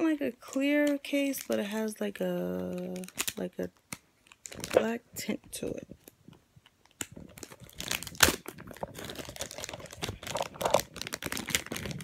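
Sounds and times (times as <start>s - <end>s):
plastic phone case crinkling: 2.5s - 5.0s, 5.6s - 12.0s.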